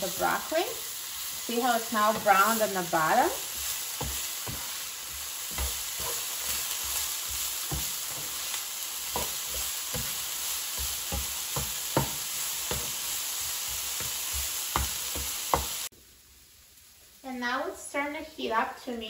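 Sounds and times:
broccoli sizzling in oil: 0.0 - 19.0
spatula scraping a pan: 0.2 - 15.9.

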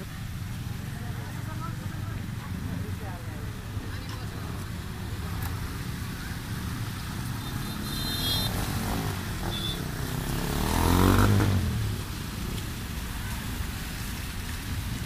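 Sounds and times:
car engine: 0.0 - 14.8.

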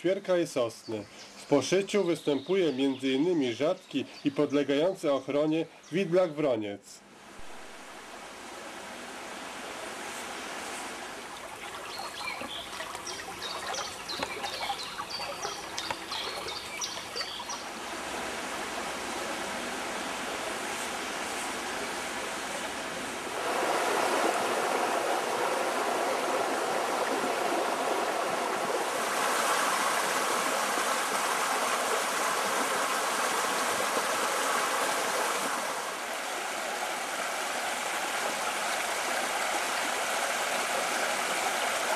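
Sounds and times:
river rushing over riffles: 7.2 - 41.9
bird singing faintly: 11.8 - 17.7.

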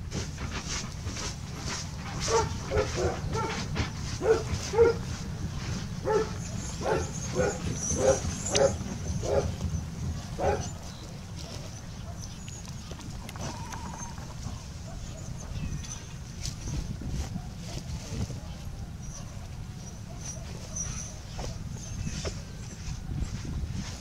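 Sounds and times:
steady low rumble: 0.0 - 19.8
short animal calls: 13.3 - 14.6.

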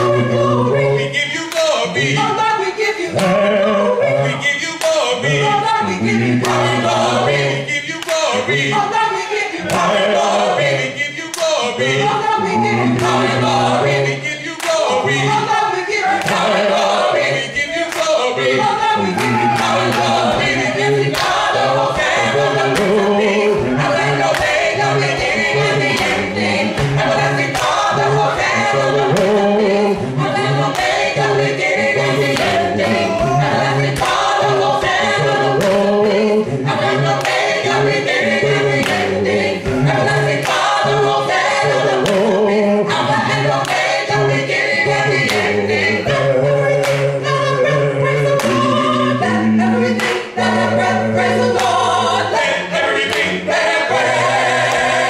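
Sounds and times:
vocal group singing in harmony: 0.0 - 55.0
deep bass voice: 19.0 - 20.7, 31.9 - 33.8
percussive beat: 19.0 - 45.6.

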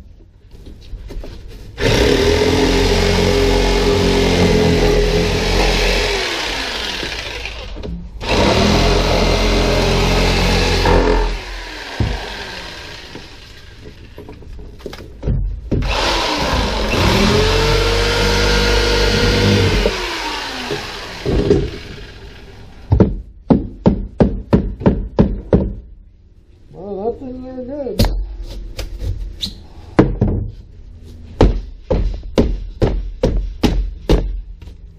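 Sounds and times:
power tool cutting: 1.8 - 13.8, 15.8 - 22.8.

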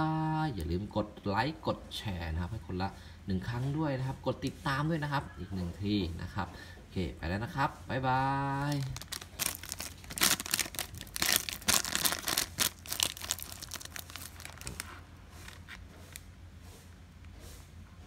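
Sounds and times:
foil bag crinkling: 8.5 - 16.3.

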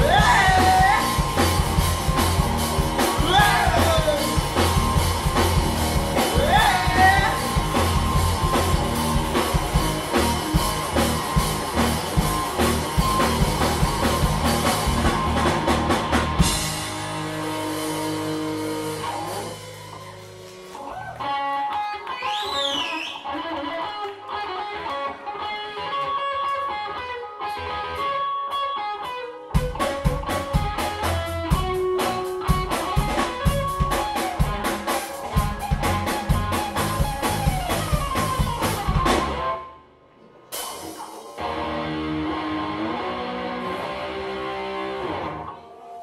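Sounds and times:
electric guitar bending notes: 0.0 - 22.2, 41.4 - 46.0
bass guitar: 0.0 - 39.8, 40.5 - 45.7
drums: 0.0 - 46.0.

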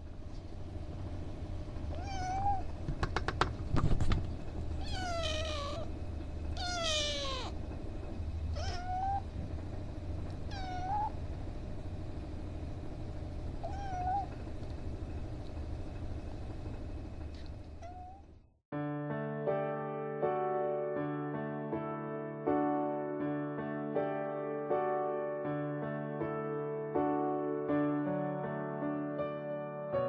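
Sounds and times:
kitten meowing: 2.0 - 2.7, 4.8 - 5.9, 6.6 - 7.6, 8.5 - 9.3, 10.5 - 11.2, 13.6 - 14.4, 17.8 - 18.2.

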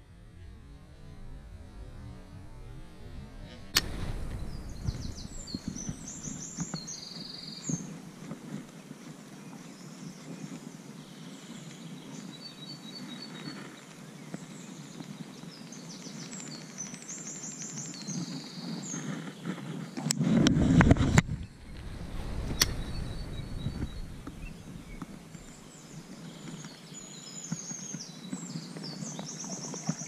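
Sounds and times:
sharp click: 3.6 - 6.8
river rushing: 21.5 - 26.4.

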